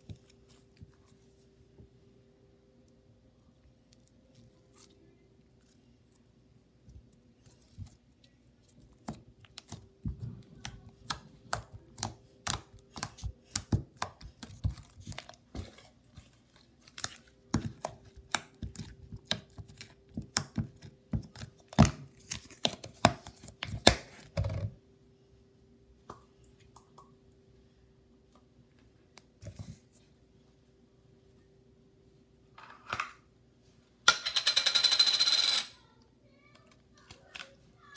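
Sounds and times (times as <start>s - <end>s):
slime squelching and popping: 3.9s - 24.2s.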